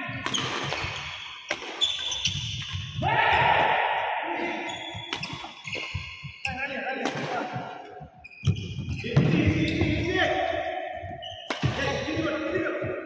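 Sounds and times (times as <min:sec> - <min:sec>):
rackets striking shuttlecock: 0:00.2 - 0:03.0, 0:04.9 - 0:08.0, 0:11.3 - 0:12.2.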